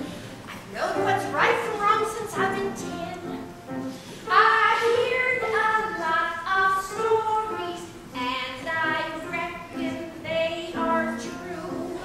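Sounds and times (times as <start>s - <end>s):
woman singing a show tune: 0.7s - 3.4s.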